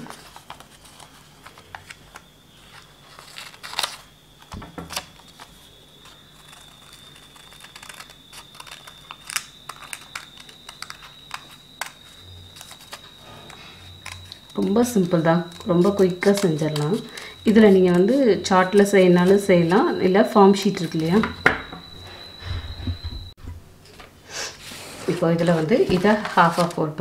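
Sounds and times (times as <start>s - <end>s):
scissors snipping paper: 0.0s - 4.1s, 4.9s - 21.3s
paper rustling: 0.0s - 21.3s, 24.6s - 27.0s
faint high-pitched whine: 0.0s - 27.0s.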